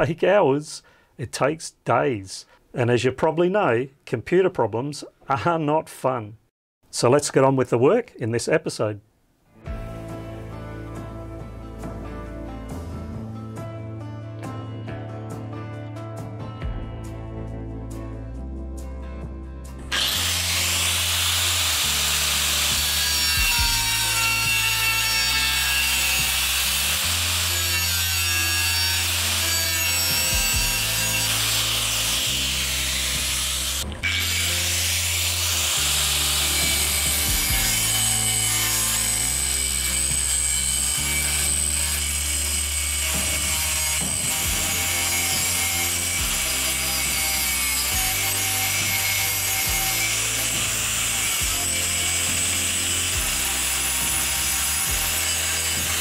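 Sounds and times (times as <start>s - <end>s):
background music with bassline: 9.6s - 20.0s, 35.8s - 38.3s
angle grinder cutting steel: 19.9s - 56.0s.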